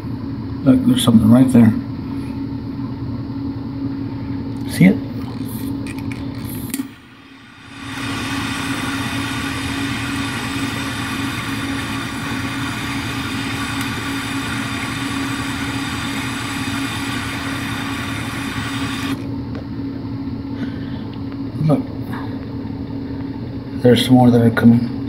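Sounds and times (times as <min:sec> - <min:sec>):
low hum: 0:02.0 - 0:23.7
torch ignition click: 0:05.9 - 0:07.0, 0:07.6 - 0:19.3
torch flame hissing: 0:06.4 - 0:19.3.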